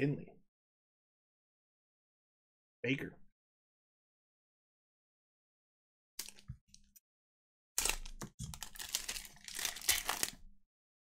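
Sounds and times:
cards and pack rustling: 7.8s - 10.4s.

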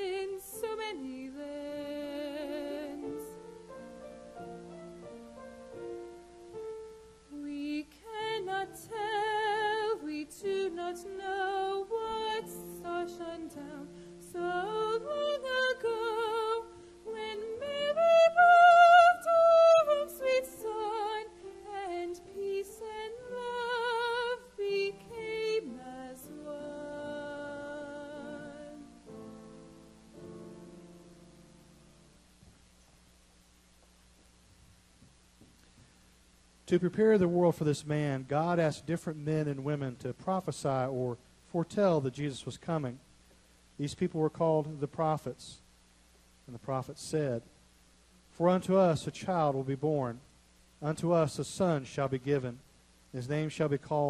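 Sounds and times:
woman singing with vibrato: 0.0s - 3.5s, 7.3s - 29.0s.

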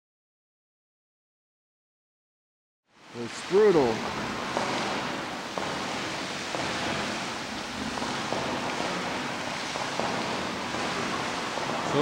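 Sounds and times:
geyser water and steam rushing: 3.0s - 12.0s.

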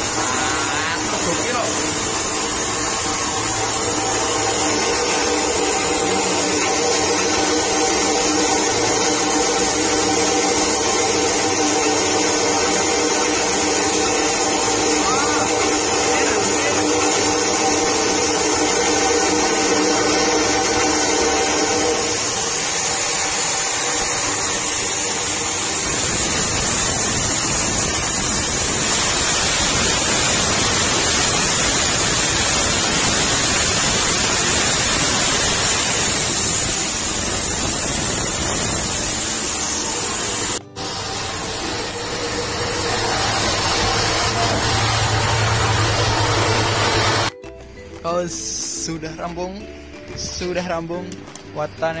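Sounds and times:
rice grains pouring: 0.0s - 47.3s
rice milling machine running: 0.0s - 47.4s.

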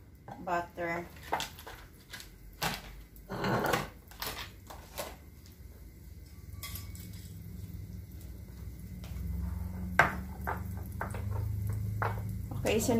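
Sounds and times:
low steady hum: 3.0s - 12.9s
dishes and utensils clinking: 6.2s - 7.8s.

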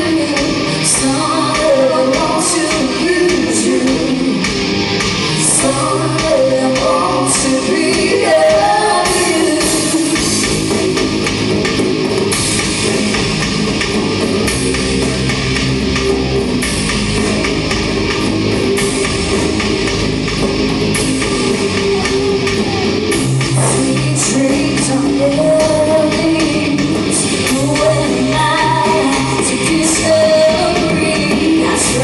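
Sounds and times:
person singing: 0.0s - 4.6s, 5.4s - 10.5s, 21.3s - 32.0s
drum kit: 0.0s - 32.0s
electric guitar: 0.0s - 32.0s.

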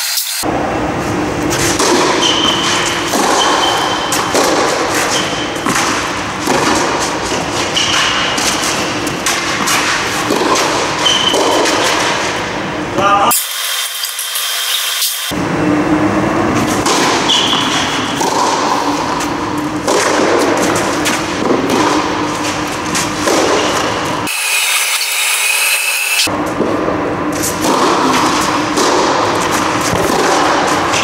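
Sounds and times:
ball bounces: 1.5s - 12.4s, 16.7s - 24.3s, 27.4s - 31.0s
racket strikes: 1.5s - 12.6s, 16.6s - 24.3s, 26.2s - 31.0s.

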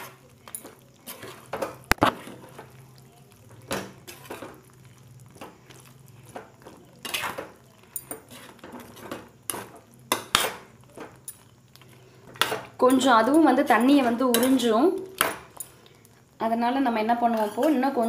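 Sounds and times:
spatula scraping metal pan: 7.0s - 10.7s.

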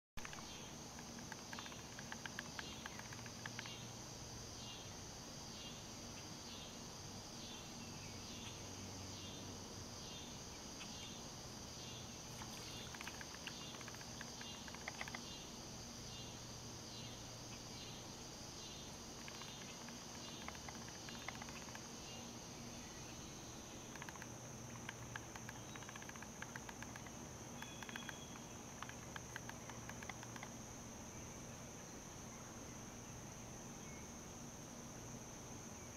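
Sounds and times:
faint clicks: 0.2s - 3.8s, 12.4s - 15.2s, 23.9s - 30.5s
high-pitched insect chorus: 0.2s - 35.9s
faint repeating chirp: 23.8s - 30.5s.

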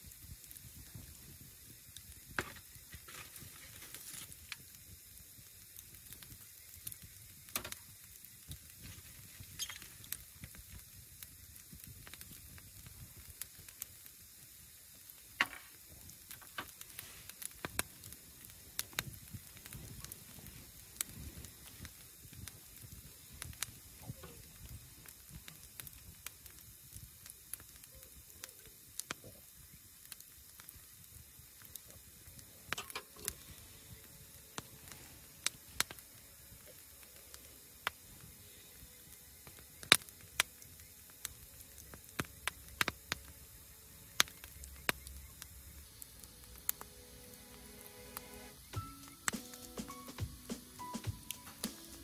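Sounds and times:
wood fire crackling and popping: 0.0s - 52.0s.

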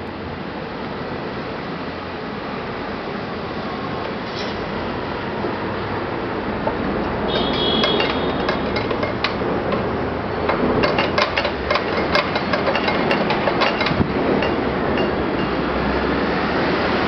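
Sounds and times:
steady background noise: 0.0s - 17.0s
sharp irregular knocks: 7.3s - 15.5s.

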